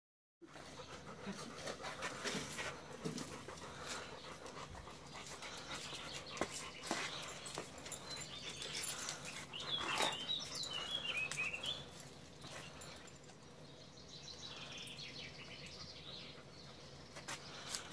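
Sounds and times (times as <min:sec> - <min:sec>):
dog panting: 0:00.4 - 0:13.2
harness rustling and clicking: 0:01.5 - 0:13.5.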